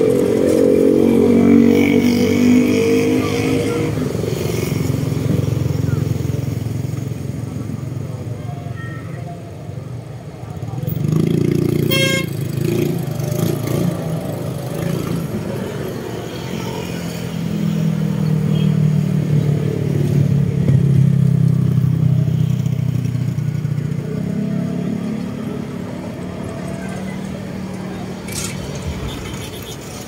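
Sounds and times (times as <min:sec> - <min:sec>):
vehicle engine humming: 0:20.6 - 0:30.0.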